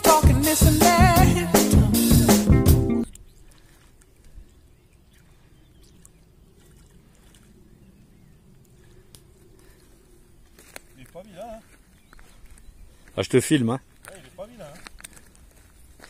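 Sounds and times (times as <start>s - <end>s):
background music with a beat: 0.0s - 3.0s
faint outdoor background noise: 3.0s - 16.0s.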